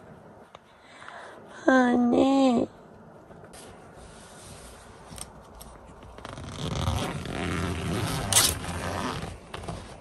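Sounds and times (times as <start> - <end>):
fabric rustling: 3.4 - 10.0
zipper being pulled: 5.9 - 10.0.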